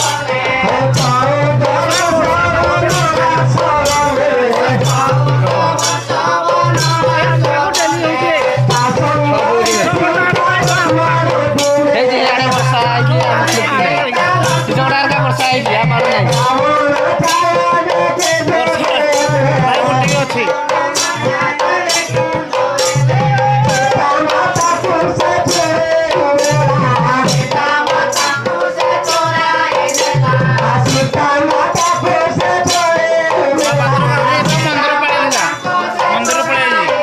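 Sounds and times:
hand drum beating: 0.0s - 27.8s
jingling hand percussion: 0.0s - 37.0s
voices singing: 0.0s - 37.0s.

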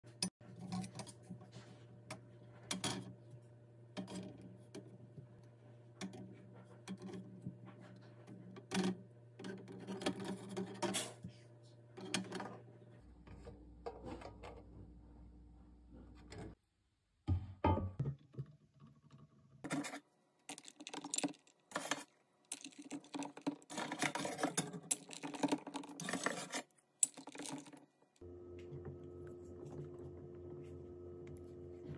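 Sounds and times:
eggs clicking on metal basket: 20.5s - 27.9s
low steady hum: 28.2s - 31.9s.

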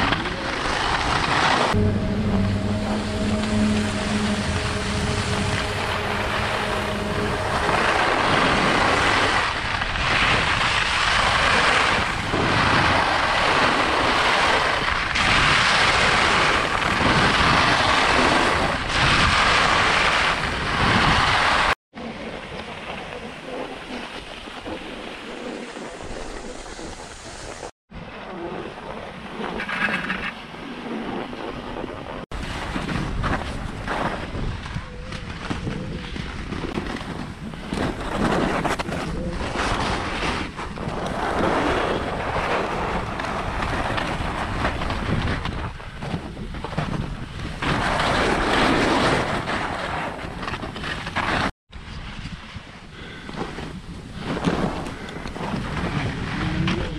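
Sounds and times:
wind on microphone: 0.0s - 56.9s
skis swishing through snow: 23.6s - 27.7s.

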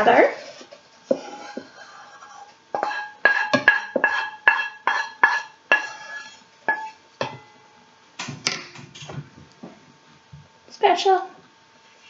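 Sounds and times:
wooden spoon knocking on saucepan: 2.8s - 5.9s.

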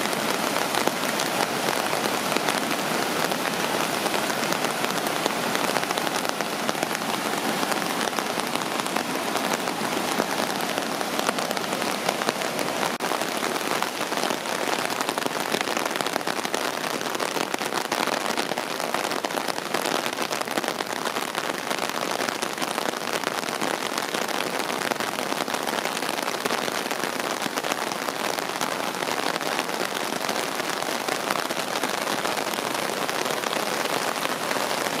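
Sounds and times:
heavy rain falling: 0.0s - 35.0s
rushing creek: 0.0s - 35.0s.

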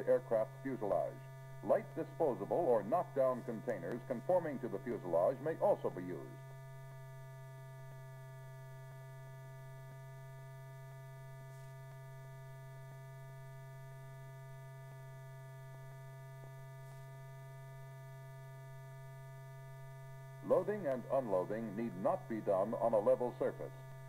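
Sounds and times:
low electrical hum: 0.0s - 24.0s.

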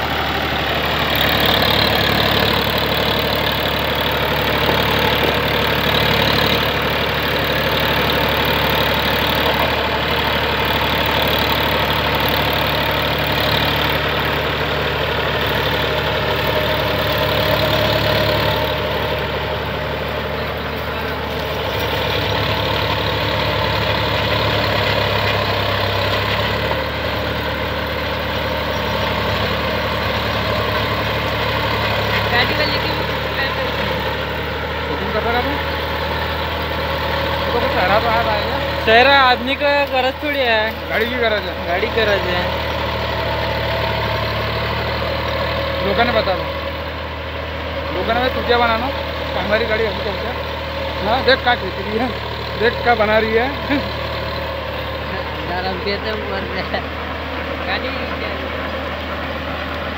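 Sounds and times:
tractor diesel engine under load: 0.0s - 59.9s
rotavator churning soil: 0.2s - 44.2s.

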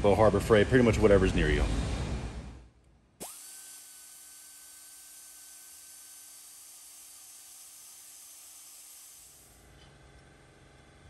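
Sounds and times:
small grinder whining: 3.2s - 9.7s.

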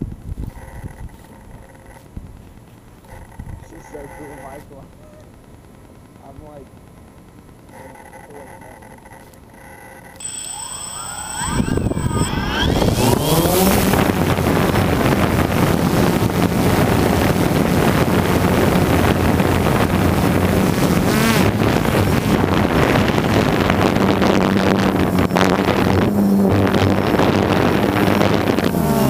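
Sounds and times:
drone propellers buzzing: 0.0s - 29.0s.

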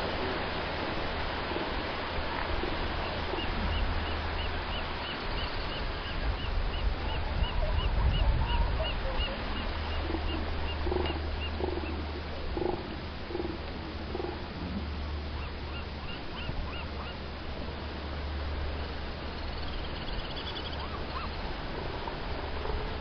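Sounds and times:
surf noise: 0.0s - 23.0s
seals giving guttural calls: 2.2s - 17.7s, 20.3s - 23.0s.

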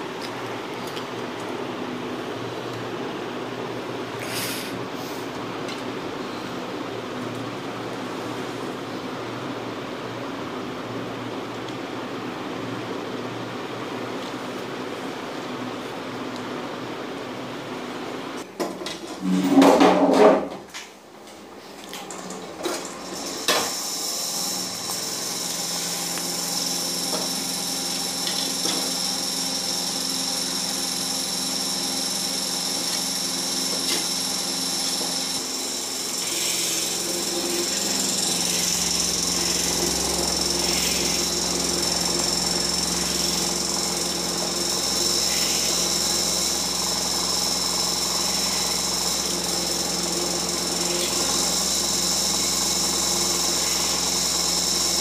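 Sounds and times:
small electric motor whining: 23.1s - 55.0s
loud rough noise: 33.8s - 55.0s.

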